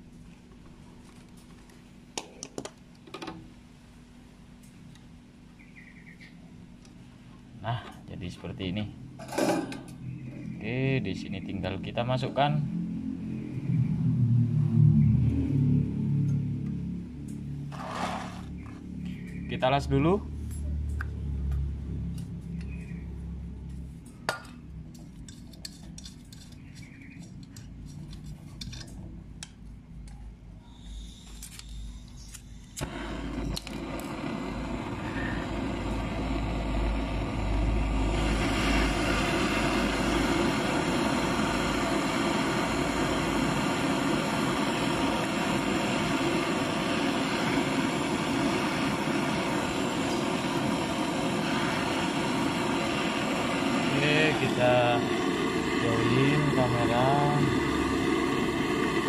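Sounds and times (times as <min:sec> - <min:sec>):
torch flame hissing: 0:17.6 - 0:18.6, 0:30.7 - 0:59.0.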